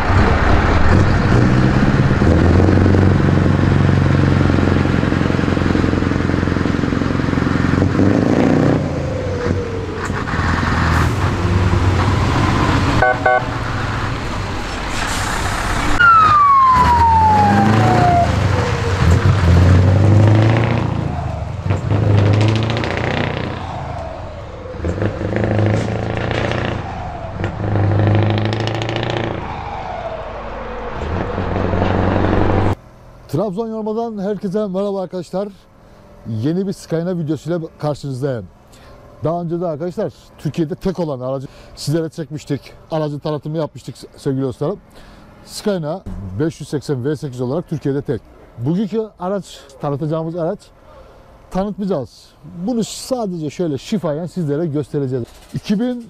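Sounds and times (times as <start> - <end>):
diesel truck engine pulling away: 0.0 - 56.0
high whistle sliding down: 16.0 - 18.4.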